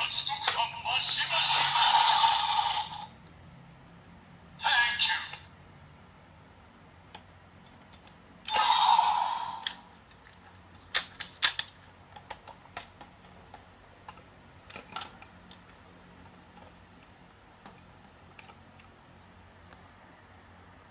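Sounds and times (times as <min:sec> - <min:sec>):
plastic toy parts clicking: 0:09.5 - 0:18.9.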